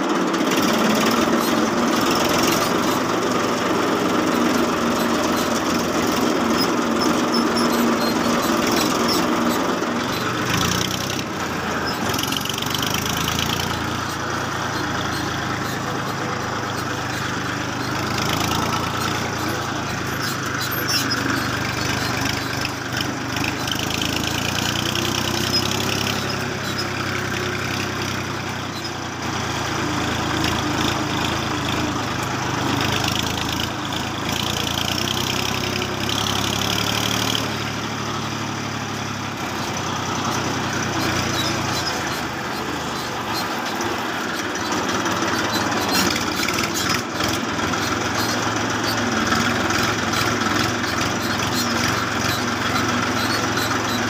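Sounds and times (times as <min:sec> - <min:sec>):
engine running: 0:00.0 - 0:54.0.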